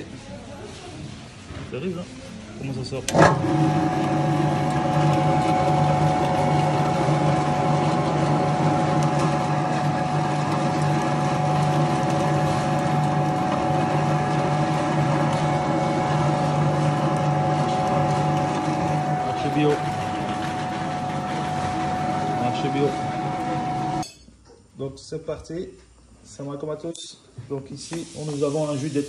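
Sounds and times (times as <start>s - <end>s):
grinder motor humming: 3.1s - 24.0s.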